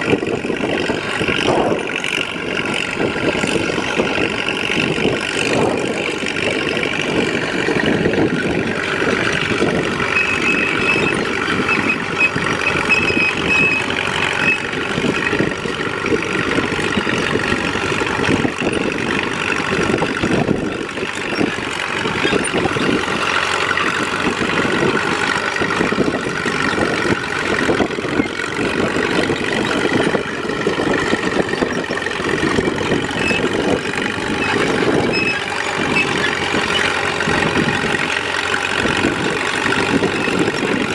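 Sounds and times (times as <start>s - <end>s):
diesel tractor engine under load: 0.0s - 40.9s.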